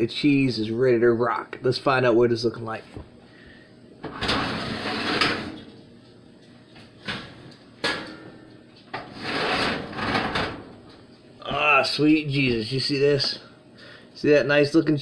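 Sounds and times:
metal pan sliding and scraping: 0:04.2 - 0:05.5, 0:09.0 - 0:10.2.

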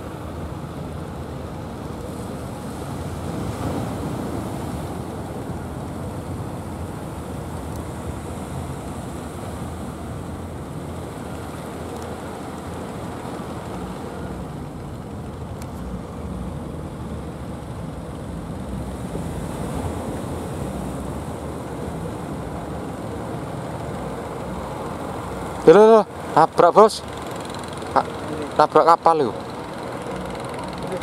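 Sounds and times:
boat engines droning: 0:00.0 - 0:31.0
surf rushing: 0:00.0 - 0:31.0
wind: 0:00.0 - 0:31.0.

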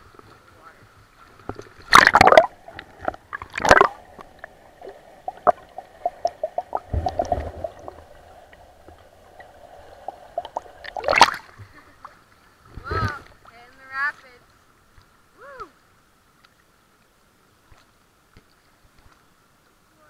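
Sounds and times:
underwater gurgling and bubbling: 0:01.4 - 0:11.6
loud splashes: 0:01.9 - 0:02.6, 0:03.4 - 0:04.0, 0:10.8 - 0:11.6
small clicks underwater: 0:17.7 - 0:19.2.

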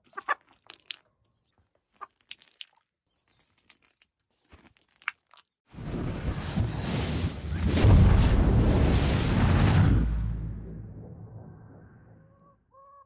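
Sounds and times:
hens pecking dirt: 0:00.0 - 0:05.4
deep fire rumble: 0:05.7 - 0:12.2.

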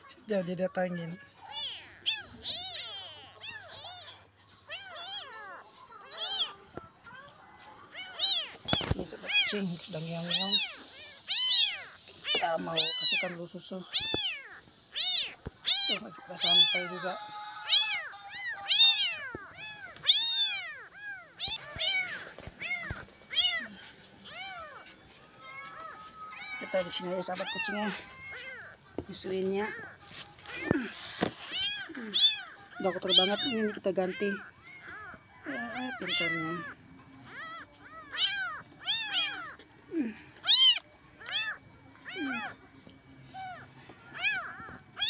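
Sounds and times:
cats meowing: 0:00.9 - 0:45.0
kittens mewing: 0:01.0 - 0:45.0.

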